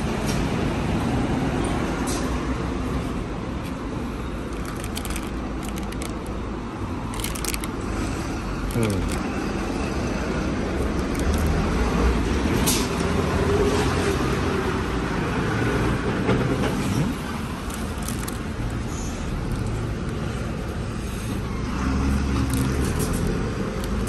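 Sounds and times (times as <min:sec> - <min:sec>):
road traffic rumble: 0:00.0 - 0:24.0
plastic pouches crinkling: 0:04.5 - 0:06.4, 0:07.0 - 0:09.4, 0:10.8 - 0:11.8, 0:17.5 - 0:20.2, 0:22.3 - 0:24.0.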